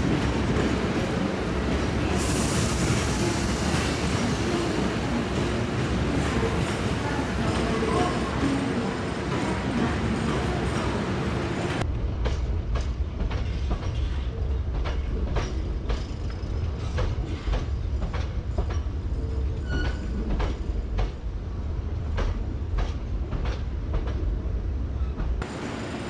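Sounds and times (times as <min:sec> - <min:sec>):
train rumbling: 0:00.0 - 0:26.0
train wheel clicks: 0:12.2 - 0:19.0.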